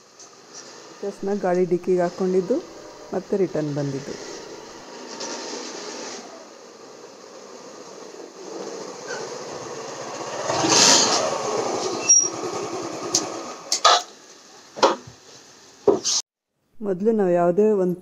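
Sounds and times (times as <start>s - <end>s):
motor scooter passing by: 0.2s - 13.8s.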